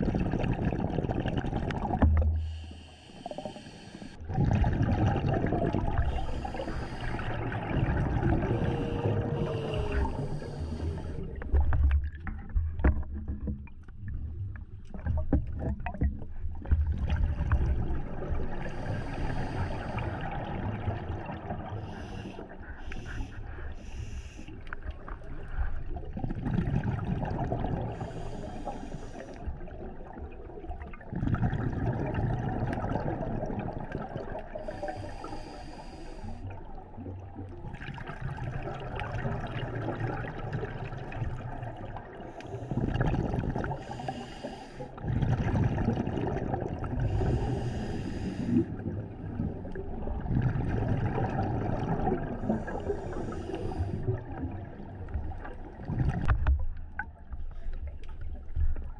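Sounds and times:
underwater bubbling rumble: 0.0 - 58.9
regulator breath hissing: 2.4 - 4.2, 6.1 - 7.4, 8.6 - 11.3, 18.6 - 20.1, 34.6 - 36.4, 43.8 - 44.9, 47.1 - 48.6, 52.6 - 54.0.

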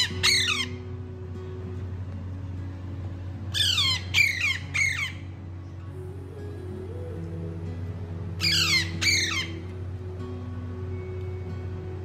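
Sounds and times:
parakeet squawking: 0.0 - 0.8, 3.5 - 5.3, 8.4 - 9.7.

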